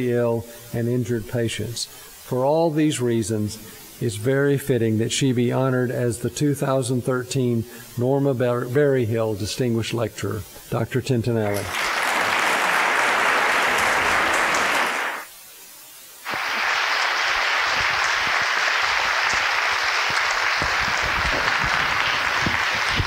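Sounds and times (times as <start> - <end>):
audience applauding: 11.5 - 15.3, 16.2 - 23.0.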